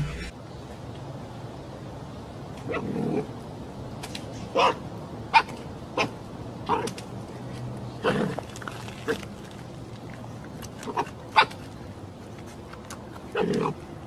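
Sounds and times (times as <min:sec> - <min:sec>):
fox yipping: 0:04.5 - 0:06.9, 0:10.9 - 0:11.6.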